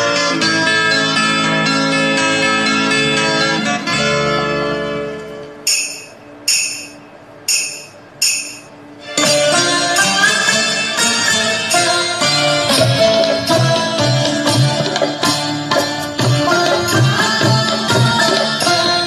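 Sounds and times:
sustained melodic music: 0.0 - 19.0
bright percussion hits: 5.7 - 8.8.

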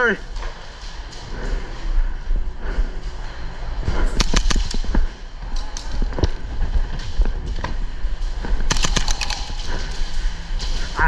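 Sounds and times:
airsoft guns firing: 4.1 - 4.9, 8.6 - 10.0.

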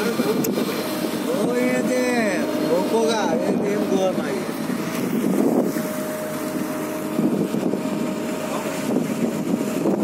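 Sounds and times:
boat engine drone: 0.0 - 10.0
waves splashing against hull: 0.0 - 10.0
wind buffeting microphone: 0.0 - 10.0.

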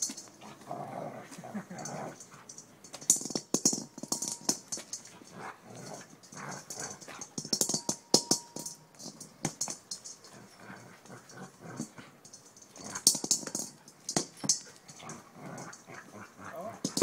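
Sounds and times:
dog growling and whining: 0.4 - 2.4, 5.4 - 7.0, 14.8 - 17.0.

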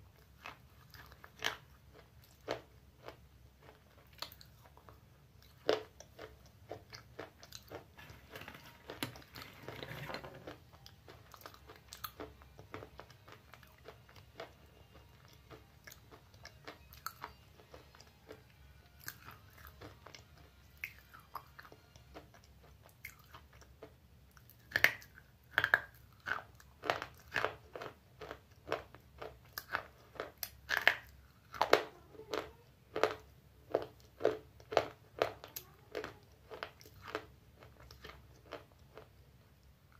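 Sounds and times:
chewing and crunching: 0.0 - 39.9.

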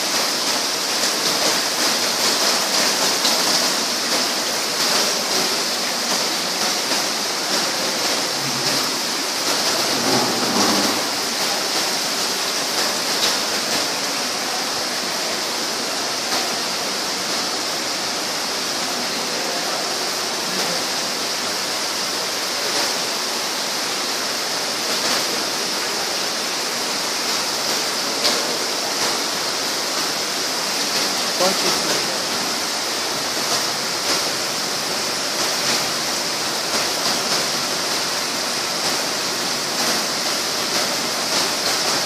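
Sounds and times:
water splashing onto pots: 0.0 - 42.0.

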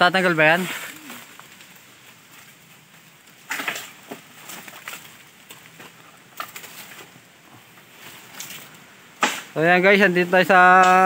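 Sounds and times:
dry bamboo cracking: 0.0 - 11.0
dry wood snapping: 3.2 - 7.2, 8.1 - 9.7.

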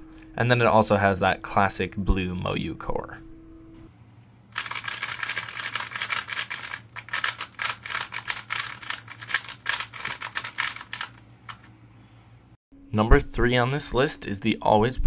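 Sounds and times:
puzzle cube plastic clicking: 4.6 - 11.7.

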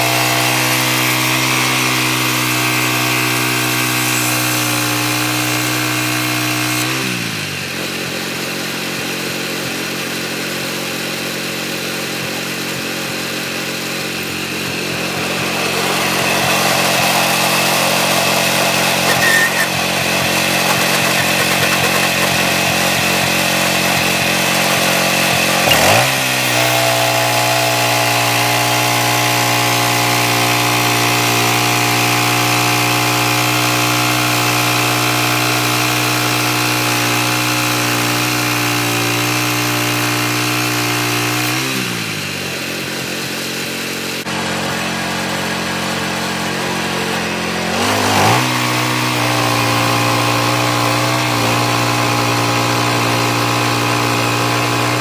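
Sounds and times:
band blade cutting log: 0.0 - 7.3, 14.1 - 42.2, 47.6 - 55.0
sawmill engine idling and revving: 0.0 - 55.0.

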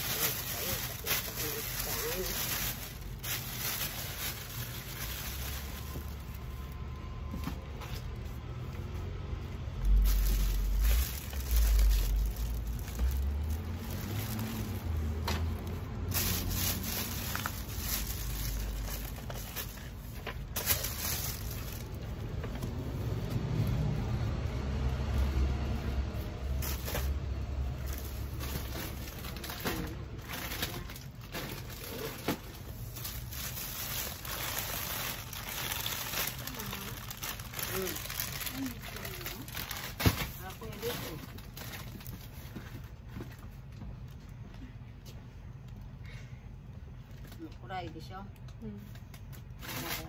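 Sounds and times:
items rustling and scraping: 0.0 - 23.8, 25.8 - 46.0, 46.9 - 47.7, 48.4 - 50.0
low rumble: 0.0 - 31.0.

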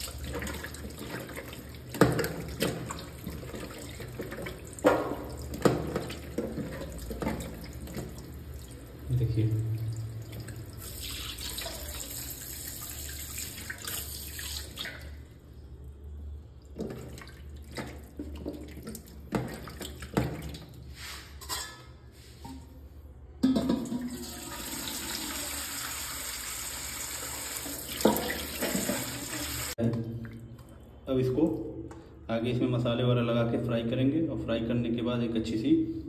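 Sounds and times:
fish splashing and knocking bowl: 0.0 - 8.6, 16.7 - 20.8, 27.8 - 29.5
tap water running into bowl: 0.0 - 15.1, 23.5 - 30.0.

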